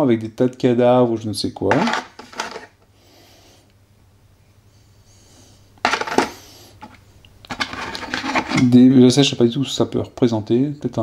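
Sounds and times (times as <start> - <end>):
scenery pieces clattering: 1.7 - 2.7, 5.8 - 6.4.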